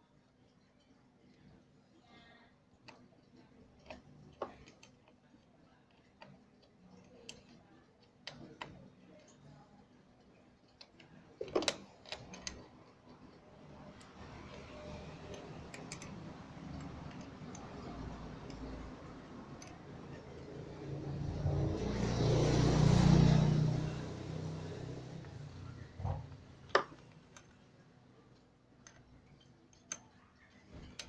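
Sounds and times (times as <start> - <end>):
vehicle passing by: 20.0 - 26.4.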